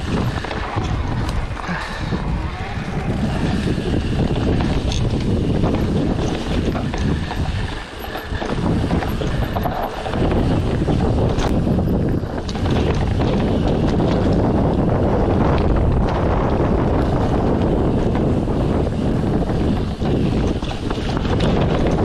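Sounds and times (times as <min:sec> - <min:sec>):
bike clicks and rattles: 0:00.0 - 0:22.0
wind buffeting microphone: 0:00.0 - 0:22.0.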